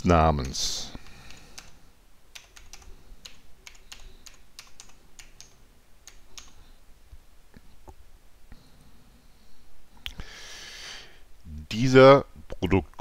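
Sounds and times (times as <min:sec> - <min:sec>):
computer keyboard typing: 0:00.4 - 0:06.6.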